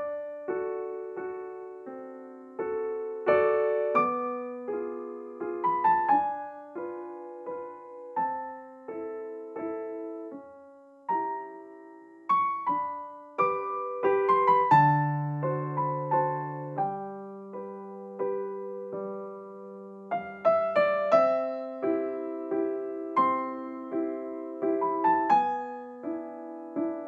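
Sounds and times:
slow piano melody: 0.0 - 27.0.

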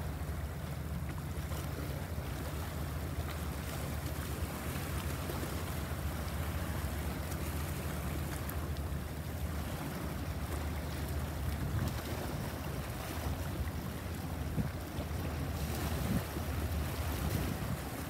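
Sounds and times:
sea waves washing in: 0.0 - 18.0
wind rumbling on microphone: 9.8 - 18.0.

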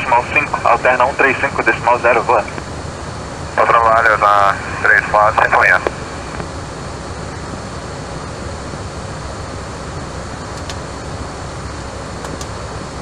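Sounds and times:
radio hiss and rumble: 0.0 - 13.0
faint clicks: 10.6 - 10.8, 12.2 - 12.6.

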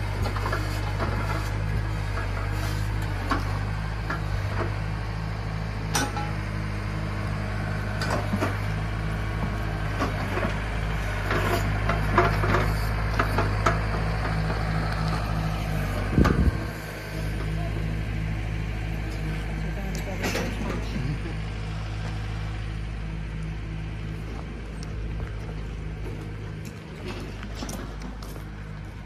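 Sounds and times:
tractor engine running: 0.0 - 29.0
backhoe bucket clanks and knocks: 5.9 - 6.4, 11.2 - 14.7, 16.1 - 16.6.

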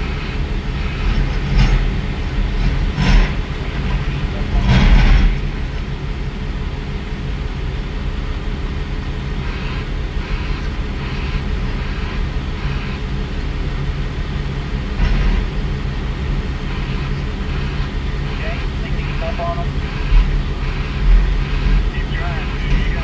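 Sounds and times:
diesel loader engine droning: 0.0 - 23.0.

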